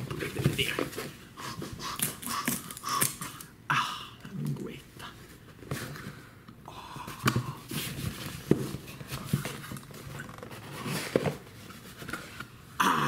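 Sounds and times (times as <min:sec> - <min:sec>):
cardboard rustling and scraping: 0:00.0 - 0:01.8, 0:07.7 - 0:12.6.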